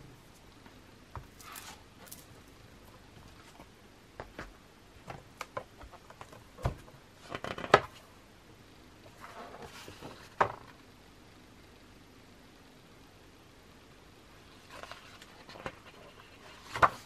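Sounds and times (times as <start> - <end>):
book pages turning: 14.6 - 17.0.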